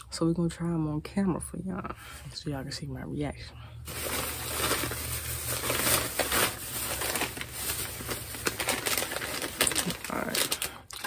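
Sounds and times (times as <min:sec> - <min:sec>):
snack packaging crinkling: 0:03.9 - 0:11.0.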